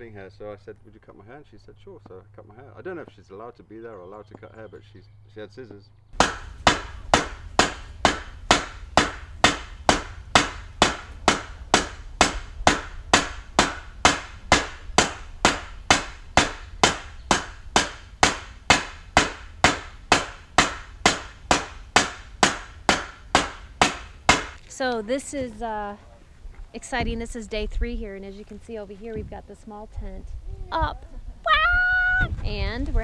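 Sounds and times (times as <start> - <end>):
hammer striking metal frame: 6.2 - 24.6.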